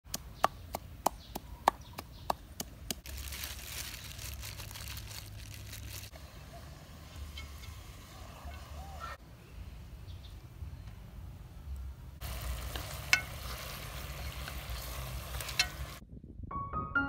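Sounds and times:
plastic gloves crinkling: 0:03.0 - 0:06.2.

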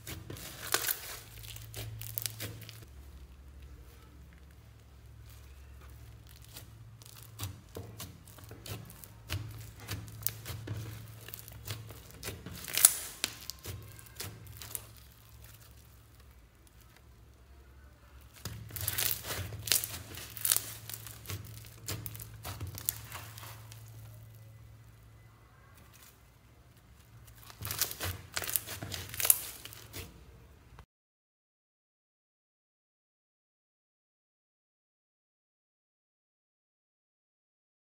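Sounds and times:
slime crackling and popping: 0:00.0 - 0:30.4.

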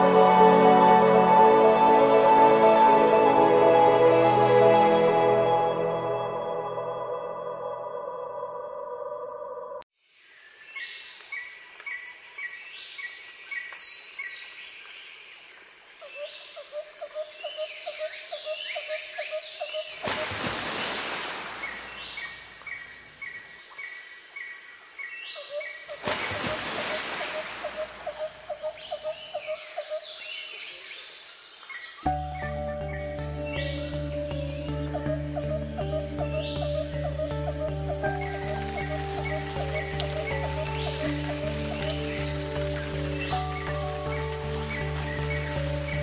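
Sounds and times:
birds chirping: 0:17.4 - 0:46.0.

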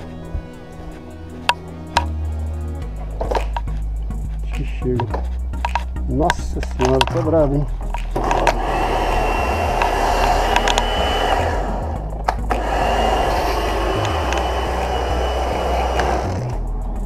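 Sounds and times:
pressure washer motor humming: 0:08.0 - 0:16.6.

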